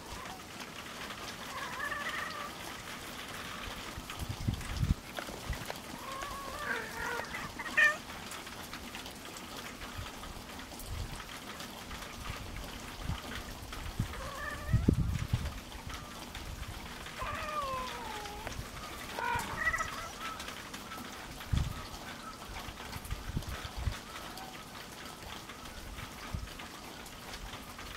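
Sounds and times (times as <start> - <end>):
cats yowling: 0.0 - 0.5, 1.2 - 3.8, 5.9 - 8.1, 14.0 - 15.2, 17.0 - 20.7.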